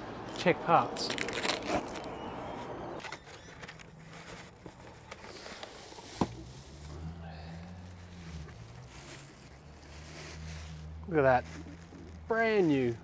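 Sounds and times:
faint handling sounds: 3.0s - 13.0s.

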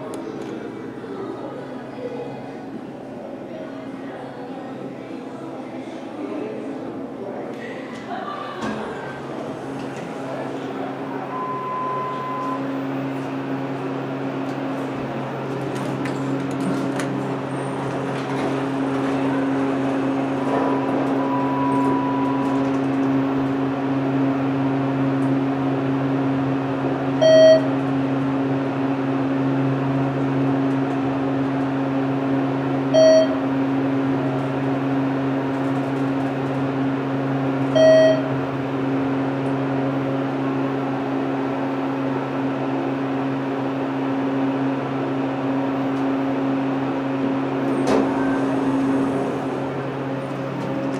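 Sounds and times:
elevator pump motor humming: 8.1s - 50.9s
short electronic beeps: 11.3s - 12.8s, 21.2s - 22.6s, 27.2s - 27.7s, 33.0s - 33.4s, 37.8s - 38.3s.

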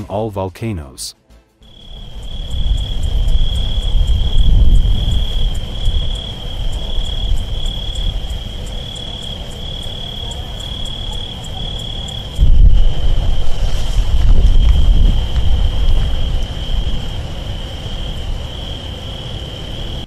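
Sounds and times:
insects trilling: 1.6s - 20.0s
deep rumble: 1.9s - 8.8s, 12.4s - 18.5s.

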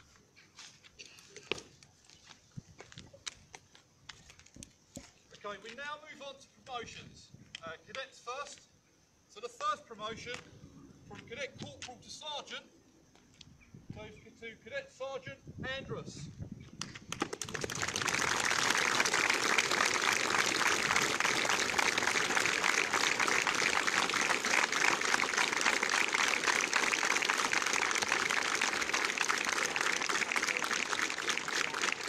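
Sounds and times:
crowd applauding: 17.1s - 32.0s.

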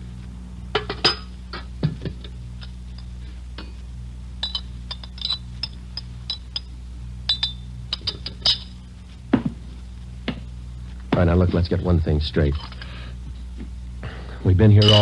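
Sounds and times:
low mains hum: 0.0s - 15.0s
spoon clinking in china cup: 4.4s - 6.7s, 14.8s - 15.0s.

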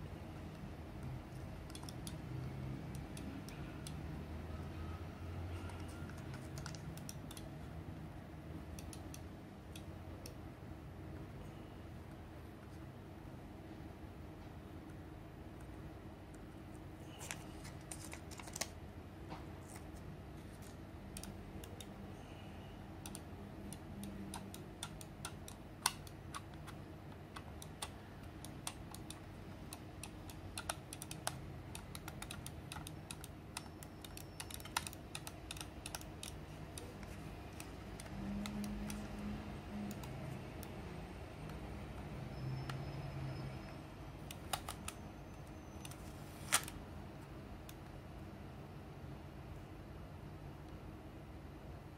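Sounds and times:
fingers pressing tape on plastic: 23.0s - 40.8s.

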